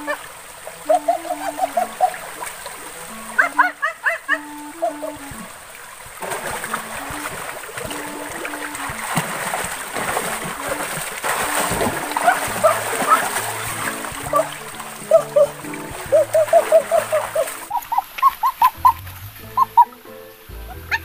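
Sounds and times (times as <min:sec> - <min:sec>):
water splashing and churning: 0:00.0 - 0:21.0
background music: 0:11.5 - 0:17.7, 0:18.6 - 0:21.0.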